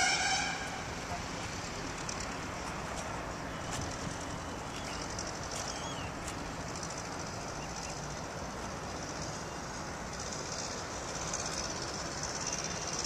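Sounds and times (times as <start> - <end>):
distant microlight aircraft engine: 0.0 - 13.0
faint bird chirps: 4.6 - 6.2.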